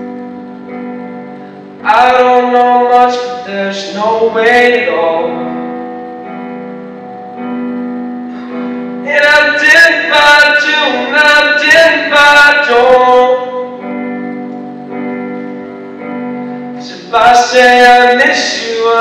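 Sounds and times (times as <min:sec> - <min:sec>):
sustained accompaniment chords: 0:00.0 - 0:18.9
man singing: 0:01.8 - 0:05.8, 0:09.0 - 0:13.9, 0:16.7 - 0:19.0.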